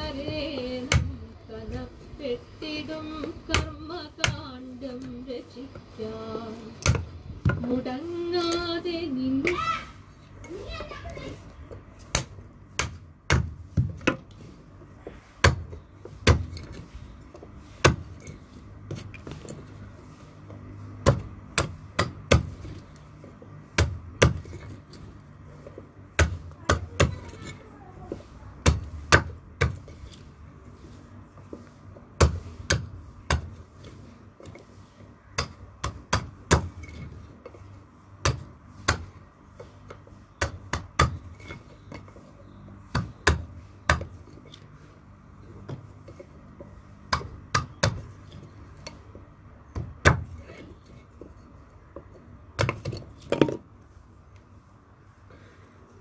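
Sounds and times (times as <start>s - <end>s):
blade chopping wood on block: 0.8s - 1.2s, 3.5s - 4.5s, 6.8s - 7.7s, 12.0s - 14.4s, 15.0s - 19.6s, 21.0s - 22.9s, 23.7s - 25.0s, 26.1s - 30.2s, 32.2s - 34.6s, 35.4s - 37.6s, 38.2s - 42.2s, 42.8s - 44.6s, 45.6s - 49.0s, 49.7s - 51.0s, 52.6s - 53.6s.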